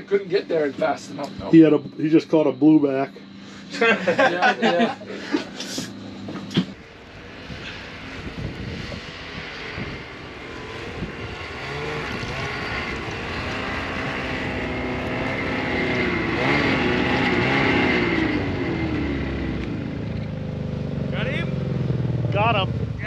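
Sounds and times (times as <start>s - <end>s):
small vehicle engine revving: 0.0s - 23.0s.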